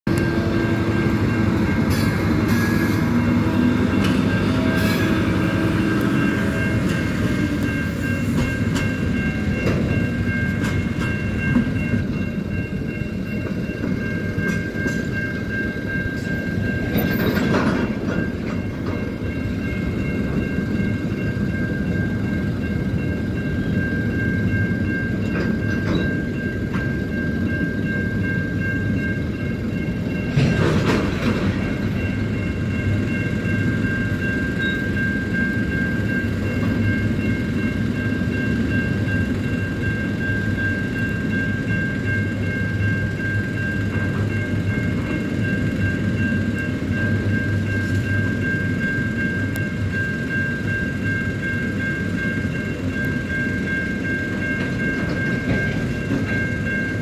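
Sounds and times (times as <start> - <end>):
diesel locomotive engine: 0.0 - 57.0
steady high ringing tones: 0.1 - 57.0
wheels clicking over rail joints: 16.0 - 22.1, 24.5 - 27.7, 30.2 - 33.2, 52.3 - 57.0.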